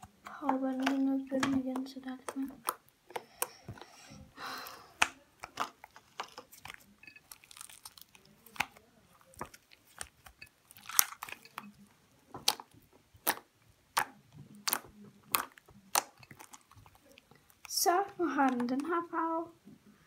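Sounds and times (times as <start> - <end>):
slime squelch: 0.0 - 19.3
slime wet clicks and pops: 12.4 - 16.7.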